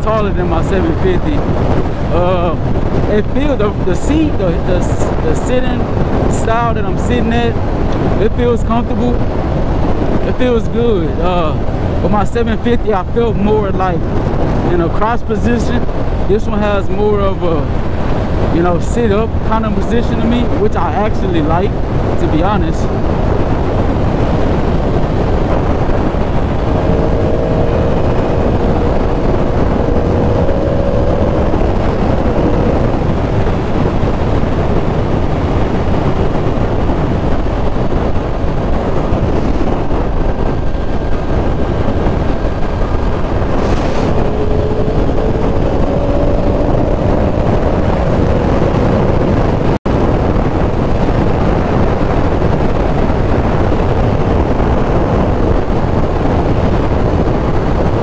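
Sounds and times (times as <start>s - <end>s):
road noise: 0.0s - 58.0s
wind rush on microphone: 0.0s - 58.0s
motorcycle engine: 22.9s - 57.5s.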